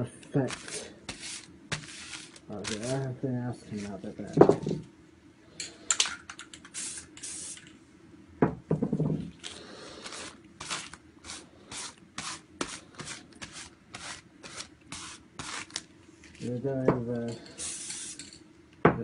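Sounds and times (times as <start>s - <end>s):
short scratchy spray strokes: 0.4s - 3.1s, 6.7s - 7.7s, 9.9s - 15.8s, 17.4s - 18.3s.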